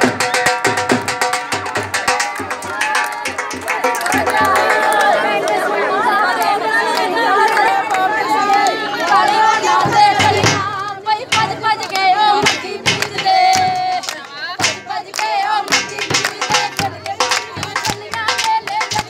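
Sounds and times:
rhythmic hand-clapping: 0:00.0 - 0:19.0
women singing folk song: 0:04.0 - 0:19.0.

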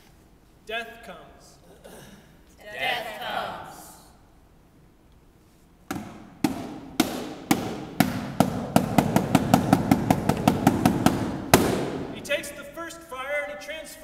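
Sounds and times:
percussion hits accelerating: 0:05.9 - 0:12.5.

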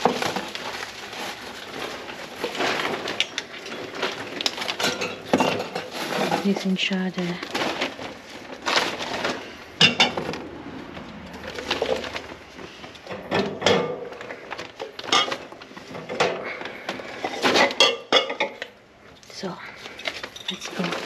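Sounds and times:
rustling: 0:00.0 - 0:13.2.

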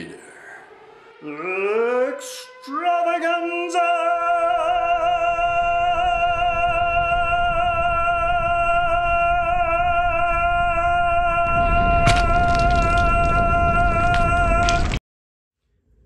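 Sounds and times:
man singing operatic note: 0:01.2 - 0:11.9.

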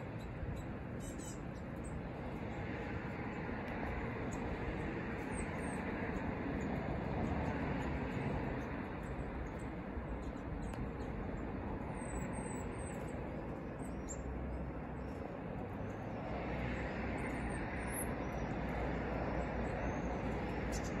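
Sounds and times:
small birds chirping: 0:00.0 - 0:02.0, 0:19.5 - 0:21.0
distant road traffic: 0:00.0 - 0:21.0.

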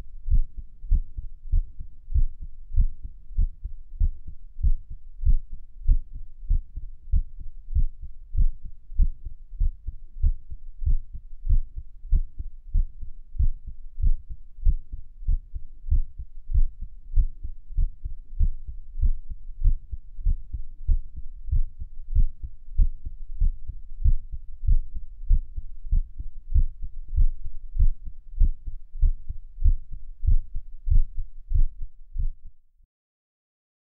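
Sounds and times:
heartbeat thumps: 0:00.2 - 0:32.5.

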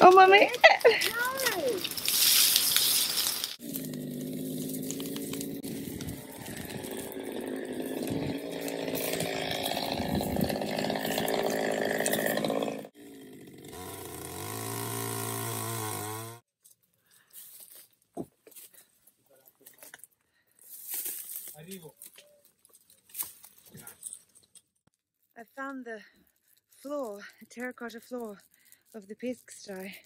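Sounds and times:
power tool petrol engine running: 0:03.6 - 0:16.4.

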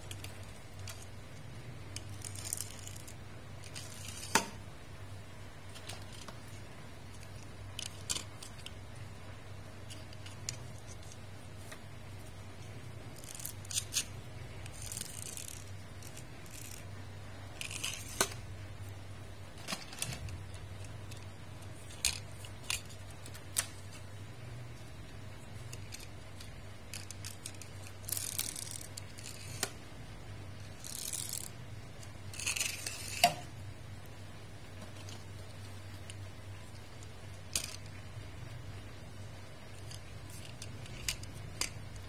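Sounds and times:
steady low hum: 0:00.0 - 0:42.0
metal toy cars clicking on floor: 0:13.1 - 0:16.9, 0:25.6 - 0:29.7, 0:37.5 - 0:37.9, 0:39.8 - 0:42.0.

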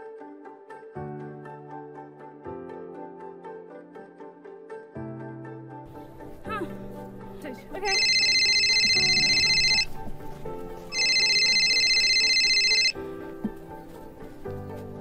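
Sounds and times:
soft background music: 0:00.0 - 0:15.0
mobile phone ringing: 0:07.8 - 0:10.0, 0:10.9 - 0:13.1.

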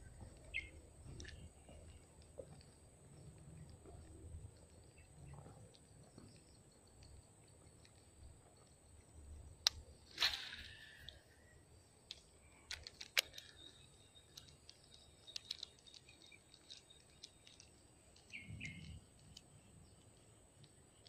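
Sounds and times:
sharp clicks: 0:12.1 - 0:21.0.

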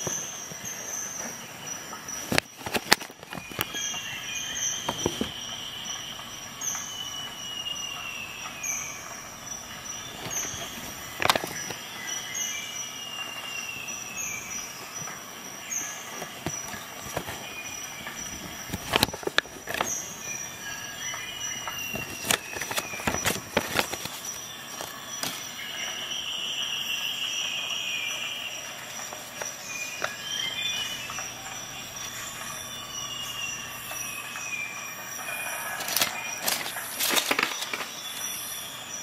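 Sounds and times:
paper leaflet crinkling: 0:02.2 - 0:05.4, 0:10.0 - 0:11.8, 0:16.1 - 0:21.0, 0:21.6 - 0:25.6, 0:28.9 - 0:31.3, 0:35.7 - 0:38.3.

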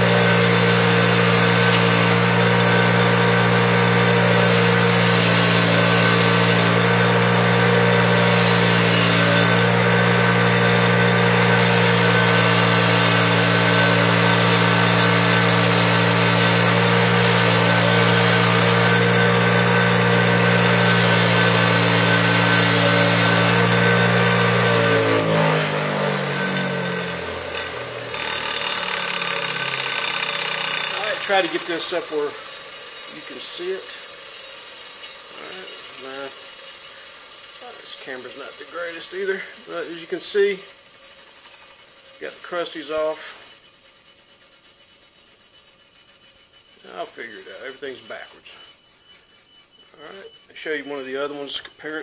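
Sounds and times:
wire wheel brushing metal: 0:00.0 - 0:40.7
grinder spinning down: 0:00.0 - 0:44.2
bench grinder motor running: 0:00.0 - 0:44.6.

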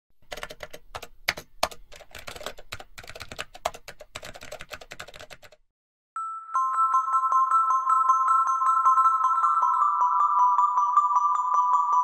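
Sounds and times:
keyboard typing clicks: 0:00.2 - 0:05.6.

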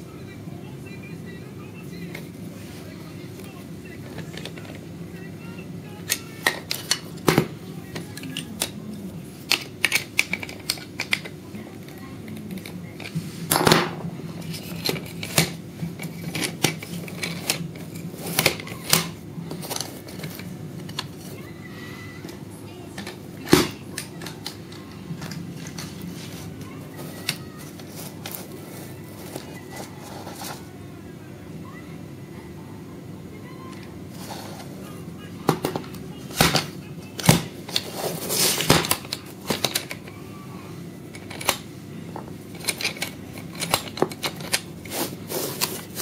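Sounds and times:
metal parts clicking and clacking: 0:09.4 - 0:11.4, 0:36.4 - 0:40.1, 0:41.1 - 0:41.6, 0:42.5 - 0:46.0.

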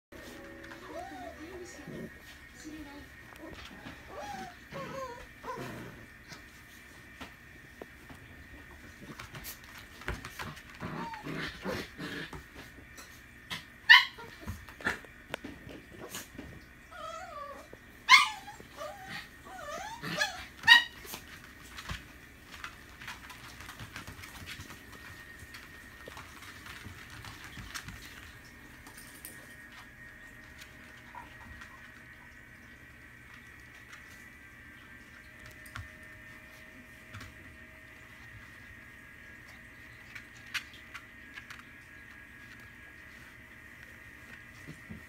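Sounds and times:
puppies whining and yipping: 0:00.7 - 0:01.8, 0:03.8 - 0:05.8, 0:13.9 - 0:14.6, 0:16.9 - 0:21.2
puppy yelps: 0:13.9 - 0:14.5, 0:16.9 - 0:21.2.

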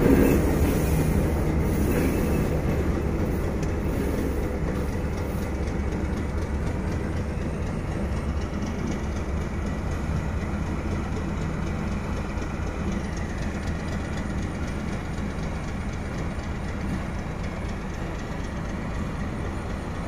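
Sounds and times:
diesel locomotive engine under load: 0:00.0 - 0:20.0.

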